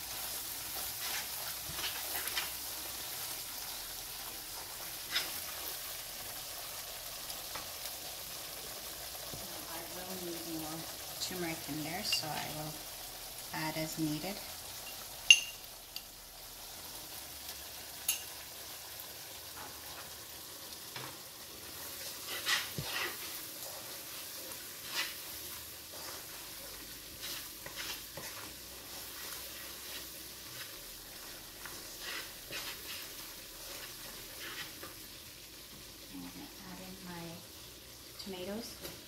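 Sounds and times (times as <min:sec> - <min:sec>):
wooden spatula stirring and scraping: 0:00.0 - 0:12.8, 0:18.1 - 0:36.6
masala sizzling in hot oil: 0:00.0 - 0:39.0.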